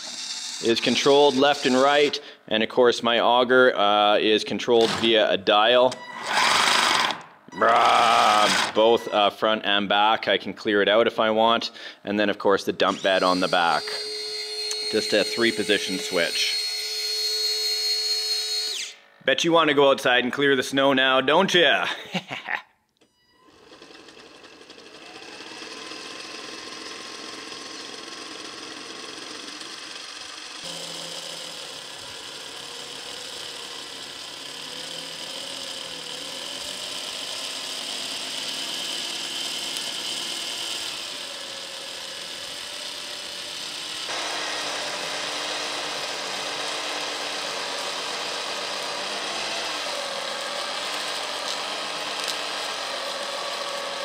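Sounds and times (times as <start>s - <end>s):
electric motors whining: 0.0s - 2.2s, 5.9s - 9.3s, 12.8s - 19.2s, 23.3s - 54.0s.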